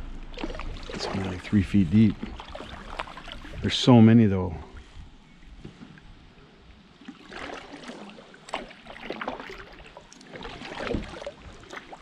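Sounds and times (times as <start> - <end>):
kayak paddle splashing water: 0.3 - 3.9, 6.9 - 12.0.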